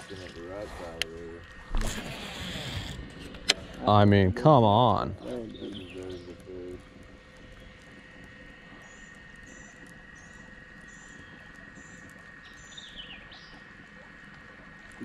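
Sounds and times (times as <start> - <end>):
faint steady hum: 0.0 - 15.0
birds chirping: 3.6 - 13.9.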